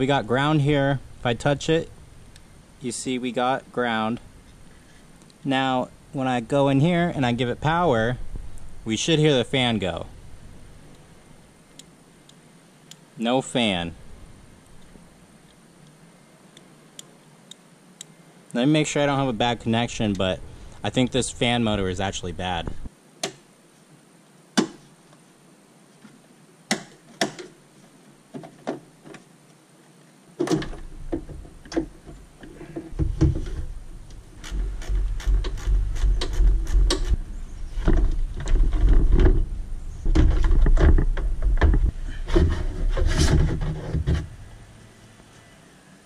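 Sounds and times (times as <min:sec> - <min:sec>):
low rumbling handling noise: 0:06.7 - 0:11.5, 0:19.1 - 0:22.9, 0:30.4 - 0:44.8
clicks and knocks of car parts: 0:26.7 - 0:27.6, 0:30.4 - 0:33.7.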